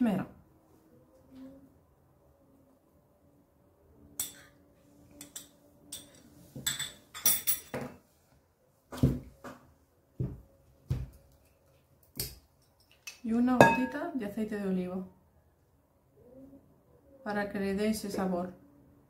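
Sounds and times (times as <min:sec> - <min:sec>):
metal spoon clinking on glass: 0:05.2 - 0:07.8, 0:13.6 - 0:14.0.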